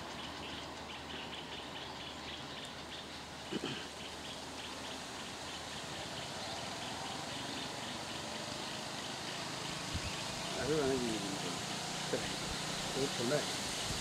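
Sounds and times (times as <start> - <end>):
faint rhythmic chirping: 0.0 - 11.2
steady rushing noise: 8.0 - 14.0.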